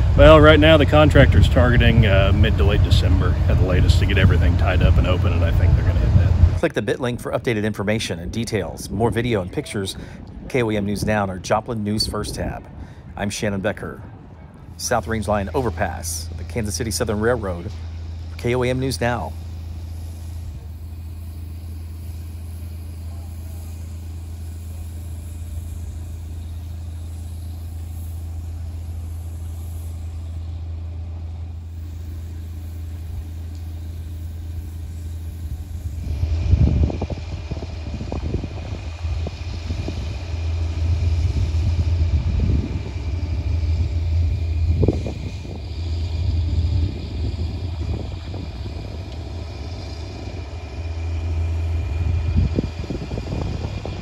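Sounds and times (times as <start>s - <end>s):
diesel machinery engines droning: 0.0s - 54.0s.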